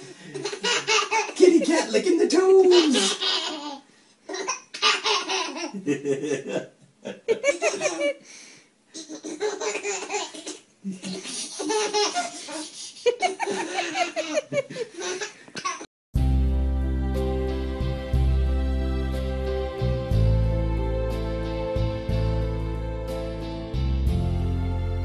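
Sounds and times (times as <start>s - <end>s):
baby laughing hard: 0.4s - 1.7s, 2.4s - 6.5s, 7.3s - 8.2s, 9.0s - 15.9s.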